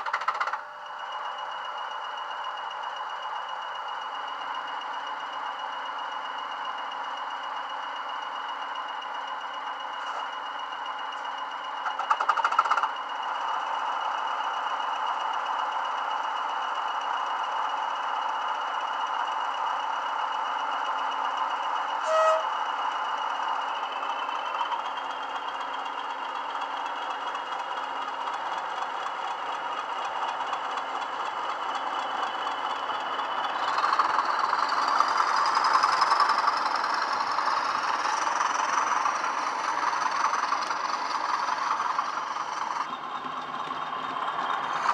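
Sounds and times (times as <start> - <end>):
model diesel locomotives idling: 0.0 - 44.9
turbocharger whistle: 21.9 - 22.8.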